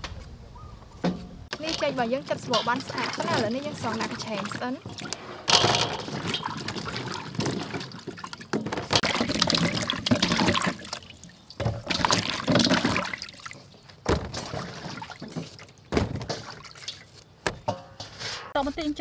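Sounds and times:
hands sloshing in bowl of water: 1.5 - 17.4
water trickling and dripping: 1.5 - 18.0.

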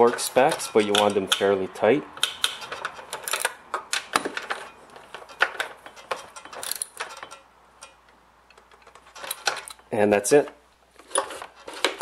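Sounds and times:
socket ratchet clicking: 2.1 - 4.1.

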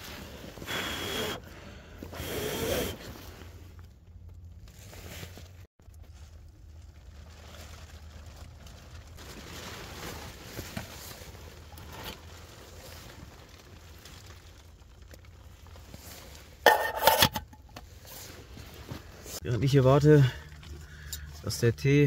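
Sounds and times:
pot lid clattering: 16.7 - 17.6.

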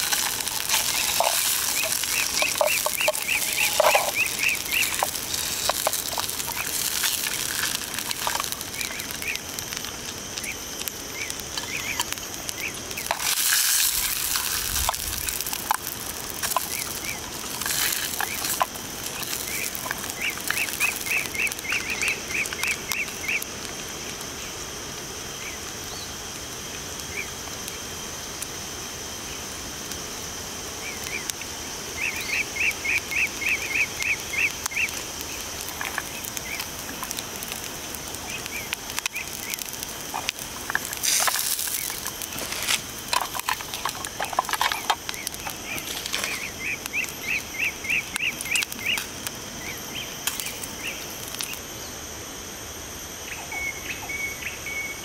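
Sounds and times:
rustling: 0.0 - 9.5, 13.0 - 22.1, 39.0 - 46.6
high insect drone: 0.0 - 55.0.

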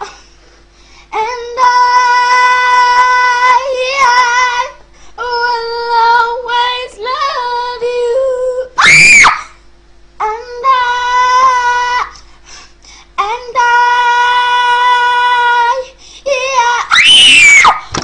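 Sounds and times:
girl singing: 1.1 - 8.8, 10.2 - 12.2, 13.2 - 17.9.

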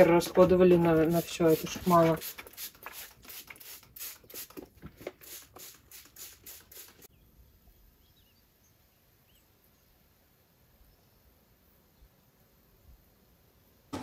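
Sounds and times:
broom swishing: 0.0 - 4.5.

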